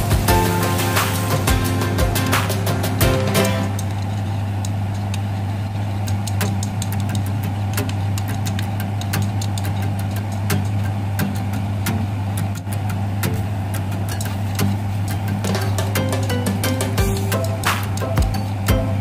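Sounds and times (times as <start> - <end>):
food sizzling in a pan: 0.0 - 2.6
oil crackling and popping: 0.0 - 16.3
steady low hum: 0.0 - 19.0.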